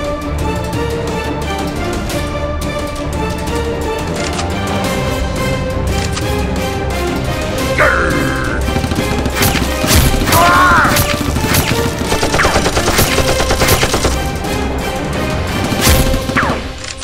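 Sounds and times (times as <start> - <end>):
background music: 0.0 - 17.0
rapid gunfire sound effects: 8.4 - 14.4, 15.5 - 16.8.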